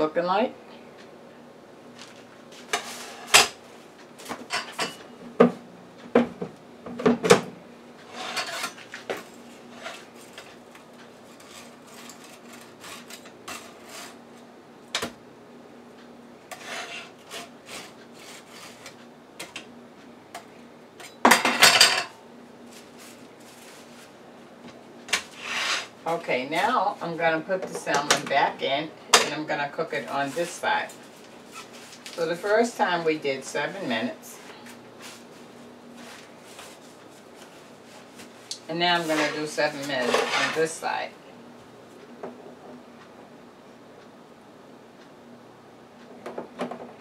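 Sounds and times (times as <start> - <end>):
metal utensil scraping wire rack: 39.0 - 40.8.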